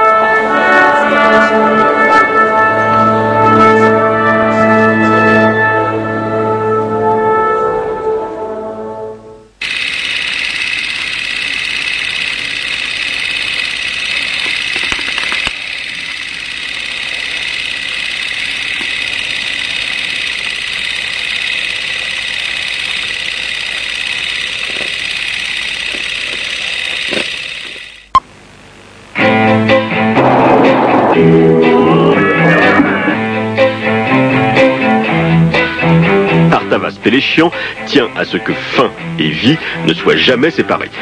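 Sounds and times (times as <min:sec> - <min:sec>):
brass music: 0:00.0 - 0:09.5, 0:29.2 - 0:36.7
shrill electronic drone: 0:29.2 - 0:35.4.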